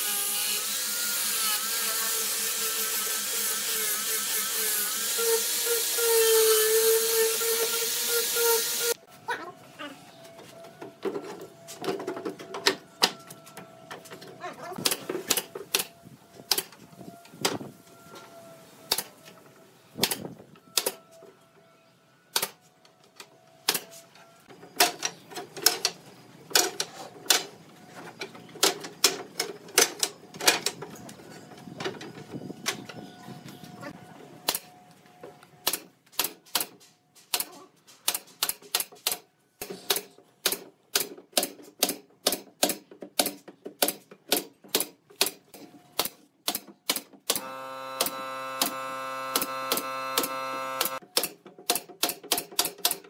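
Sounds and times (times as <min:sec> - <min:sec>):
nail gun firing: 0:20.0 - 0:21.0, 0:39.9 - 0:45.4, 0:46.0 - 0:53.0.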